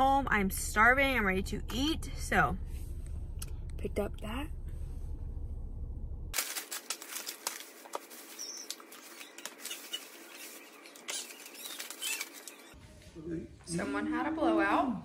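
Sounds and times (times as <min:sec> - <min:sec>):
plastic bags and foil crinkling: 0:06.4 - 0:12.8.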